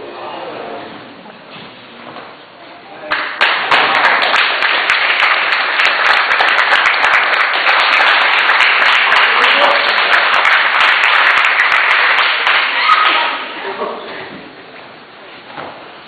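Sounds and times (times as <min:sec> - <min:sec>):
crowd clapping: 0:03.1 - 0:13.3.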